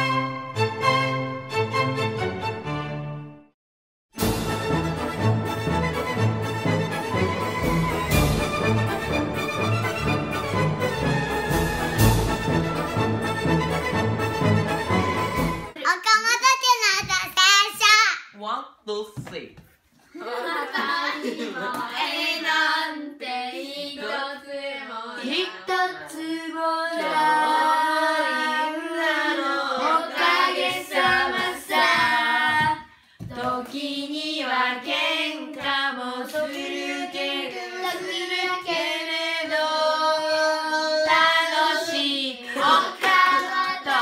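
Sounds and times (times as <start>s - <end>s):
children singing in unison: 21.6s - 44.0s.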